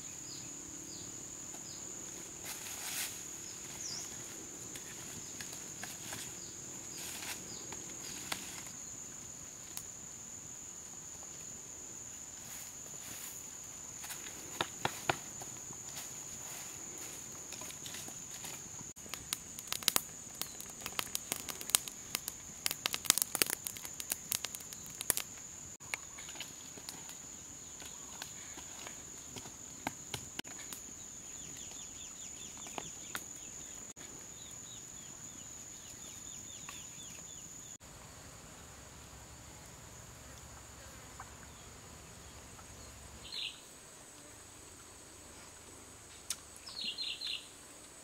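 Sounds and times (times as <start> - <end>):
sharp crackles and clicks: 19.0 - 25.5.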